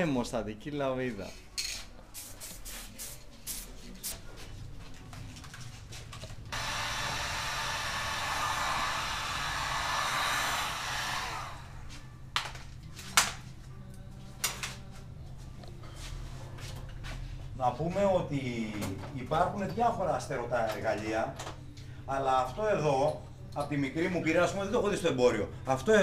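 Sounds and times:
heat gun blowing air: 0:06.5 - 0:12.0.

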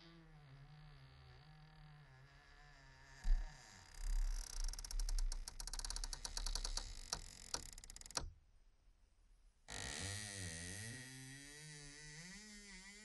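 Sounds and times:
door hinge creaking: 0:00.5 - 0:08.3
door hinge clicks: 0:05.2 - 0:08.4.

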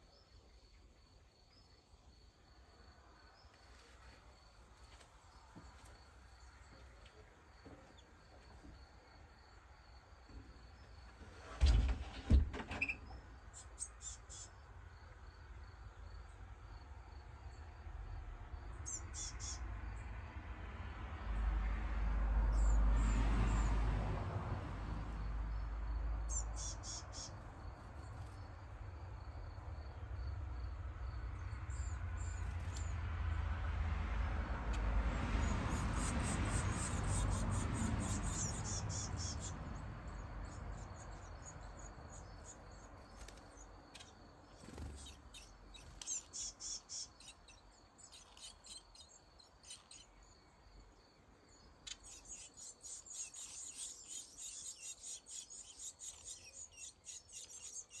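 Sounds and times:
nestlings begging calls: 0:12.8 - 0:14.6, 0:18.8 - 0:19.7, 0:26.2 - 0:27.5, 0:35.4 - 0:42.8, 0:43.9 - 0:50.2, 0:51.8 - 0:58.0.

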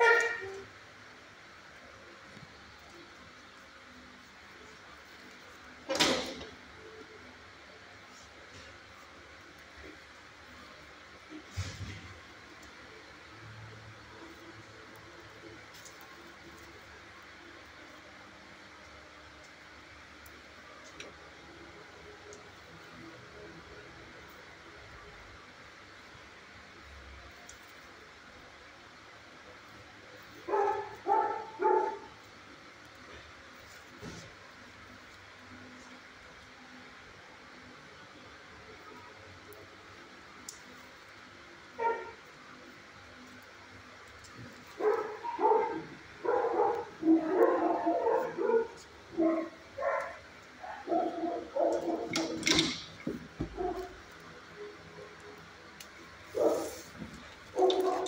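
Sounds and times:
dog barking: 0:30.5 - 0:32.1, 0:41.8 - 0:42.2, 0:44.8 - 0:52.4, 0:53.6 - 0:53.9, 0:56.4 - 0:56.8, 0:57.6 - 0:58.0.

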